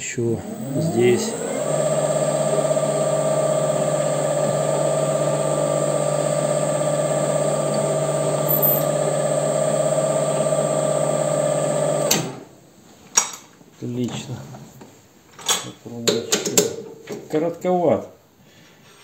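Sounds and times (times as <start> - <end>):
lathe motor and gear whine: 0.0 - 12.3.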